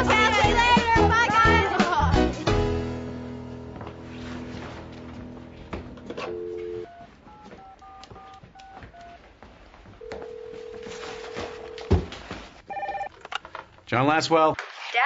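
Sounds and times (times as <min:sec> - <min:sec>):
phone dial tone: 0:06.1 - 0:09.2, 0:10.0 - 0:11.9, 0:12.7 - 0:13.1
keypad touch-tone beeps: 0:06.2 - 0:09.2
phone ringing tone: 0:06.2 - 0:09.2, 0:10.0 - 0:12.0, 0:12.7 - 0:13.1.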